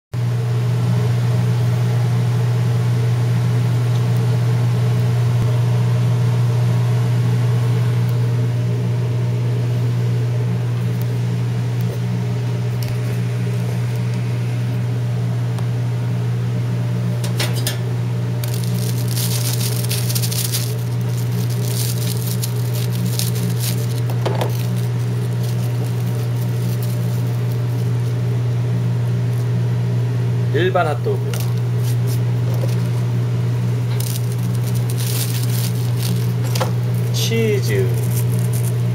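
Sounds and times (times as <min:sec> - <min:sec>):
kitchen equipment hum: 0:00.2 - 0:38.9
knife crackling through batter crust: 0:18.4 - 0:28.3, 0:31.3 - 0:33.0, 0:33.9 - 0:37.2, 0:37.9 - 0:38.9.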